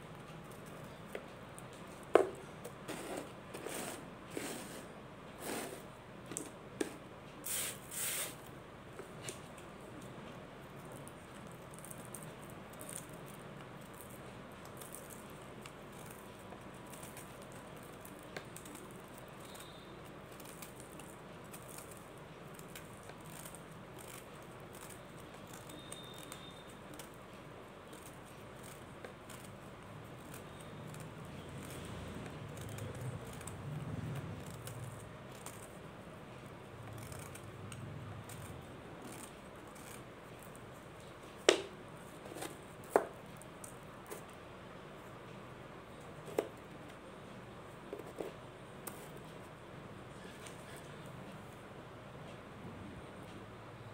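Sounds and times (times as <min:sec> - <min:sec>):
tweezers scraping mothball cake: 0:10.8 - 0:41.2.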